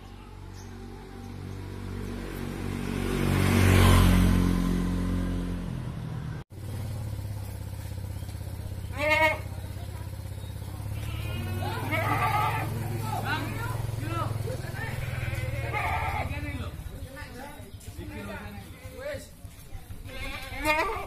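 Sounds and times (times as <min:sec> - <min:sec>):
motorcycle passing by: 0:00.0 - 0:21.0
goat bleating: 0:08.8 - 0:09.7, 0:10.7 - 0:13.6, 0:14.8 - 0:16.4, 0:19.9 - 0:21.0.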